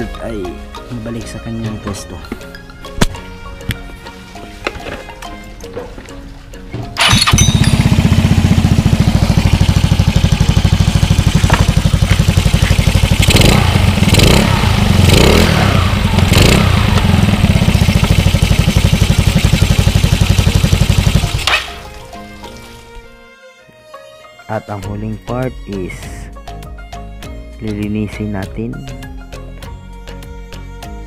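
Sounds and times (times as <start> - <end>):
scooter engine idling and revving: 7.0 - 21.9.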